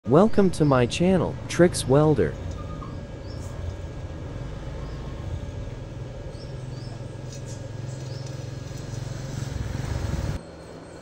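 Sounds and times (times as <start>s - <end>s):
low background rumble: 0.1s - 10.6s
high bird chirps: 2.3s - 3.6s, 6.2s - 9.0s.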